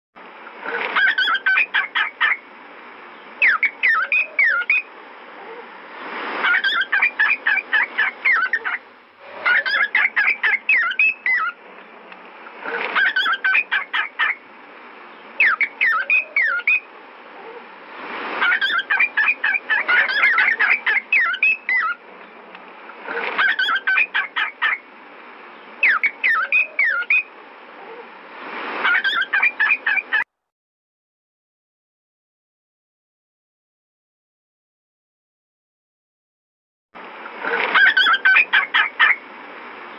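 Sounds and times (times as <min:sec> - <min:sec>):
cockatiel chirping and whistling: 0:01.0 - 0:02.4, 0:03.4 - 0:04.9, 0:06.4 - 0:08.8, 0:09.4 - 0:11.6, 0:13.0 - 0:14.4, 0:15.4 - 0:16.9, 0:18.4 - 0:22.0, 0:23.4 - 0:24.8, 0:25.8 - 0:27.3, 0:28.8 - 0:30.2, 0:37.7 - 0:39.2.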